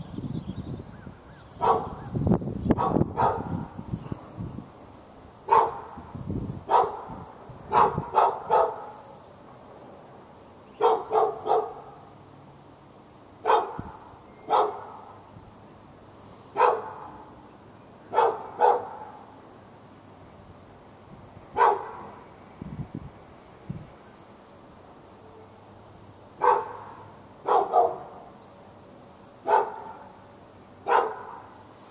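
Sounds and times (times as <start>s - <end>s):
dog barking: 1.6s - 2.0s, 2.8s - 3.7s, 5.5s - 5.9s, 6.7s - 9.0s, 10.8s - 12.0s, 13.4s - 15.1s, 16.6s - 17.2s, 18.1s - 19.2s, 21.6s - 22.1s, 26.4s - 28.2s, 29.4s - 30.2s, 30.8s - 31.5s.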